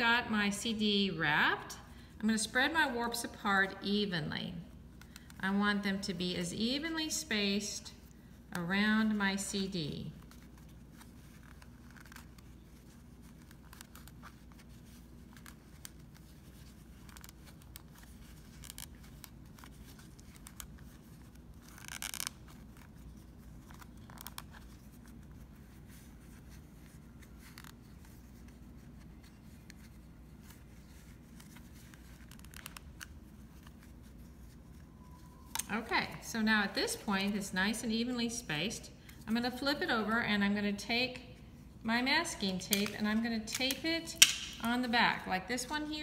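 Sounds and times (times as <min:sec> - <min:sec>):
low room hum: 0:00.0 - 0:46.0.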